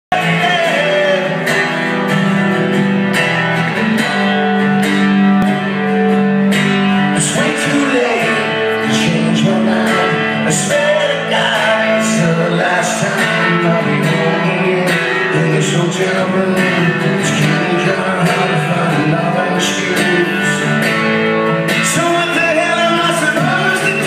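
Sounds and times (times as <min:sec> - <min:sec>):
man singing: 0:00.1 - 0:02.2, 0:07.0 - 0:24.0
acoustic guitar: 0:00.1 - 0:24.0.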